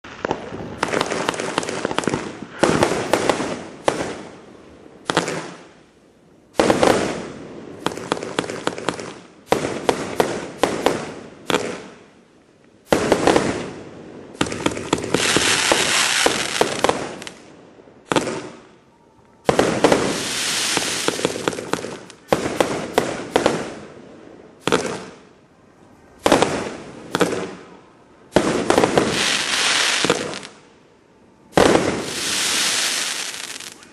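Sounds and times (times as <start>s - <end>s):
crackling hiss: 0.0s - 33.9s
firework cake firing: 12.8s - 17.4s, 19.4s - 23.9s, 28.3s - 30.6s.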